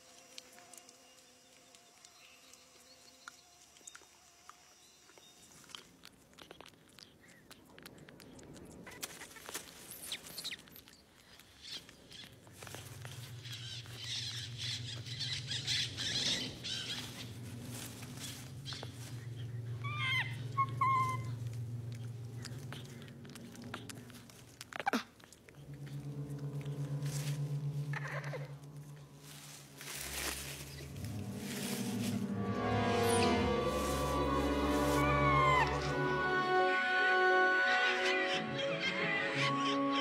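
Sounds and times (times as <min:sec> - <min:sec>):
monkey squeaky chirps: 0:08.9 - 0:12.4, 0:19.8 - 0:21.4, 0:35.0 - 0:35.9
low throbbing hum: 0:12.2 - 0:36.8.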